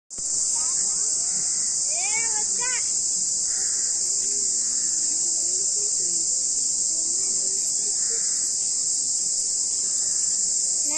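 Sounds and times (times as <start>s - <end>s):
insect chorus drone: 0.1s - 10.9s
child calling out: 0.5s - 2.9s.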